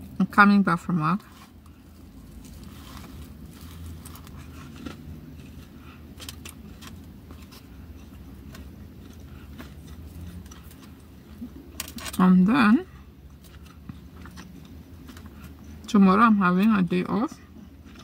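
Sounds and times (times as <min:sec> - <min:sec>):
car rumble: 0:00.0 - 0:18.0
chewing: 0:01.3 - 0:12.2, 0:13.2 - 0:15.9, 0:17.6 - 0:18.0.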